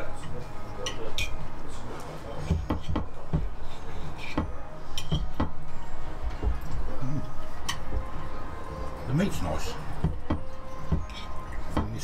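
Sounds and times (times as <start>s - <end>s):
cutlery scraping a plate: 3.6s - 5.4s, 11.0s - 11.5s.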